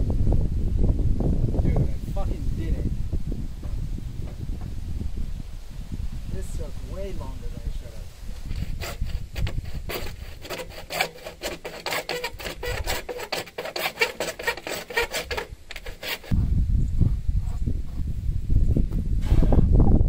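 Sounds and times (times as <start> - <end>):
hand saw cutting plastic pipe: 8.5 - 16.4.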